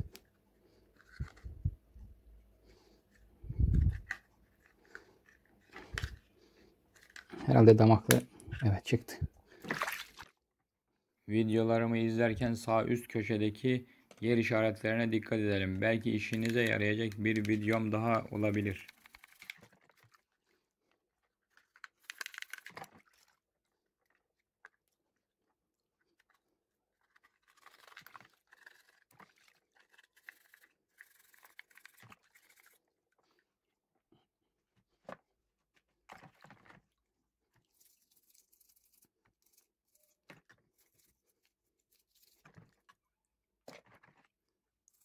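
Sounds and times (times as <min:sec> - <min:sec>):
toothbrush bristles scratching plastic: 0:00.9 - 0:01.7, 0:06.9 - 0:07.6, 0:15.8 - 0:23.4, 0:26.1 - 0:33.2, 0:37.4 - 0:43.1, 0:43.7 - 0:45.0.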